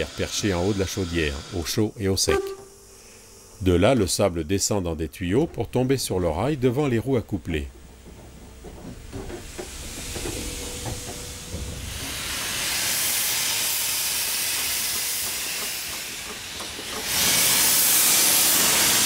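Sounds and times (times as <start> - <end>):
steam locomotive hissing steam: 0.0 - 4.8, 9.1 - 19.0.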